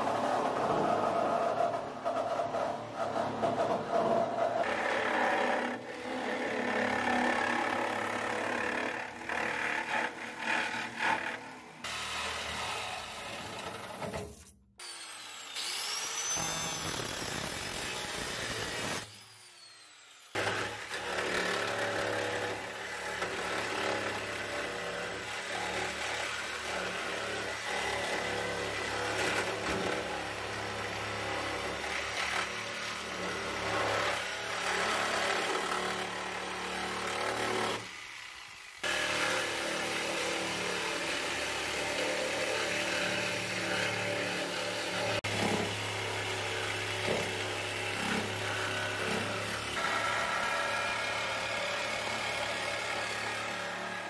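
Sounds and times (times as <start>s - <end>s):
reciprocating saw cutting sheet steel: 0.0s - 54.0s.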